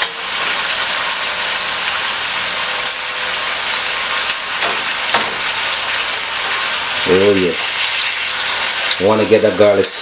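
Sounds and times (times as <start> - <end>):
chicken sizzling in oil: 0.0 - 10.0
tongs clicking against pan: 9.7 - 10.0.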